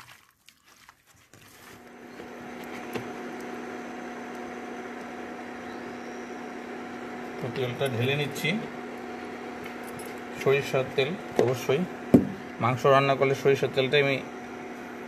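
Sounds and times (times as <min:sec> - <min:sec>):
hands squelching food in bowl: 0:00.0 - 0:01.9
induction cooktop humming: 0:01.7 - 0:15.0.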